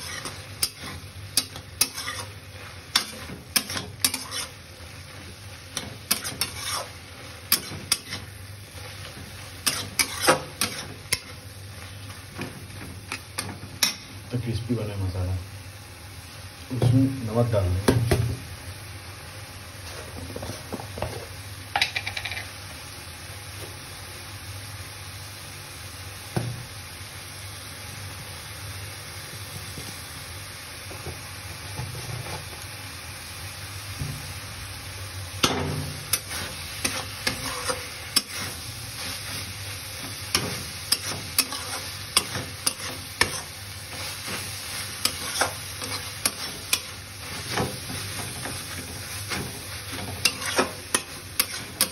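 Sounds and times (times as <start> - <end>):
spatula scraping a pan: 0.0 - 14.1, 35.9 - 51.9
vegetables sizzling in a pan: 0.0 - 51.9.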